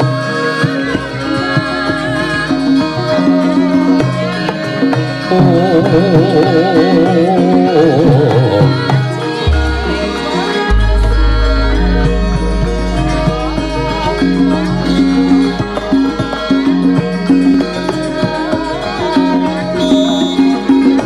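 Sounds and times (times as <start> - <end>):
gamelan music: 2.9 - 21.0
woman singing with vibrato: 5.3 - 12.1
deep low gong tones: 9.5 - 15.8.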